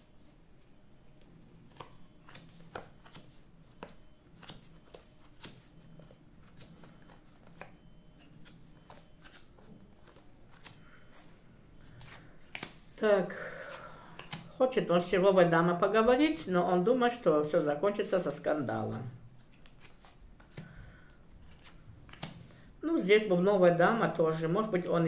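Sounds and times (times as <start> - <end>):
playing cards shuffled and dealt: 1.6 - 13.0, 14.0 - 14.6, 19.4 - 22.7.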